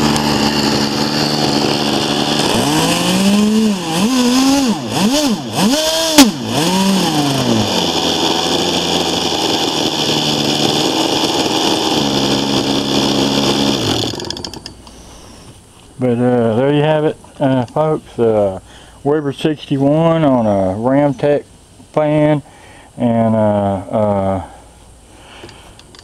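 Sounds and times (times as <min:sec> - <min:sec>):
model engine screaming: 0:00.0 - 0:15.4.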